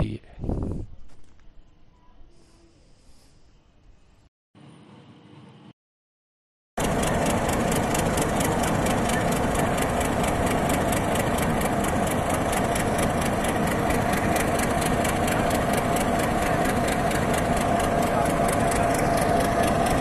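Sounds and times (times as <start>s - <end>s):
locomotive engine idling: 6.8s - 20.0s.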